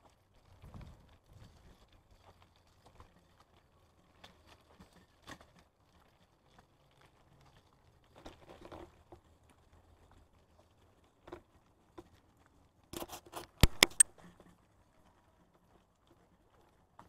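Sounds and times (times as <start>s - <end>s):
stroller rattling over bricks: 0.0s - 13.5s.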